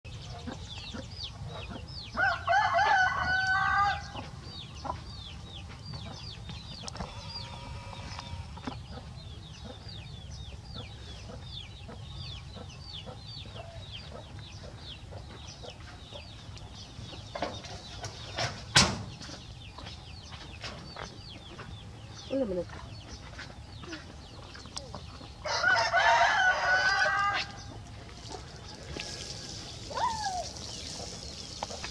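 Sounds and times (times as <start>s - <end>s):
chicks peeping and clucking: 0.1s - 31.9s
rooster crowing: 2.2s - 4.1s, 25.4s - 27.6s.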